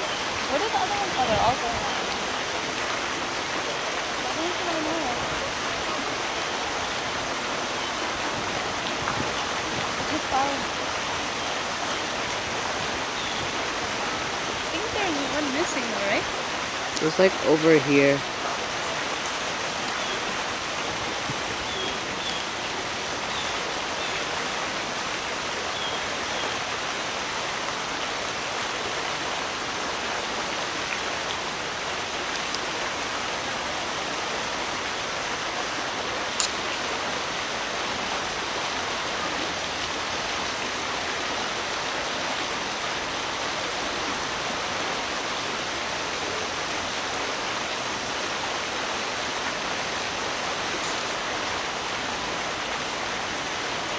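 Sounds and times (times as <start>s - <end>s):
water rushing among rocks: 0.0s - 53.9s.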